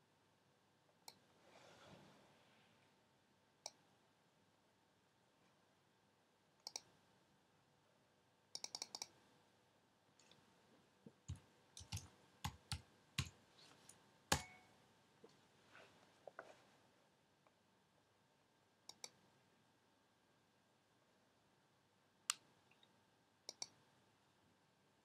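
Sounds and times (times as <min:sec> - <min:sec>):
mouse clicks: 0:06.6 - 0:06.9, 0:08.5 - 0:09.2, 0:11.3 - 0:14.7, 0:18.9 - 0:19.2, 0:23.5 - 0:23.8
keyboard keystrokes: 0:11.3 - 0:13.4.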